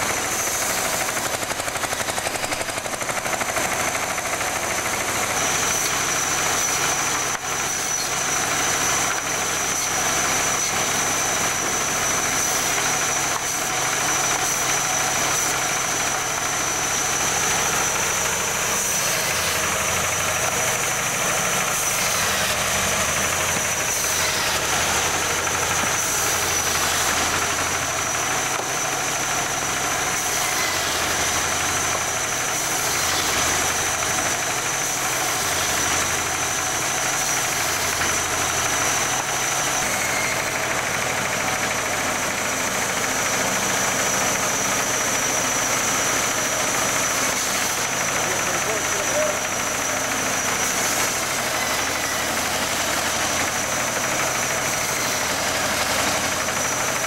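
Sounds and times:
band saw droning: 0.0s - 57.0s.

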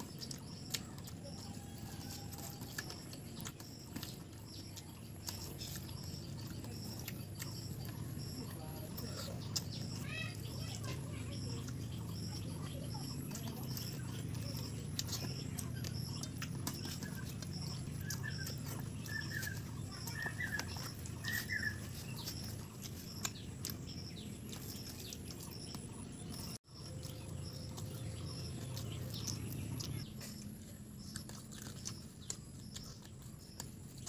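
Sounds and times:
bird chirping: 0.0s - 34.0s
chewing and mouth clicks: 0.0s - 34.0s
low background hum: 0.0s - 34.0s.

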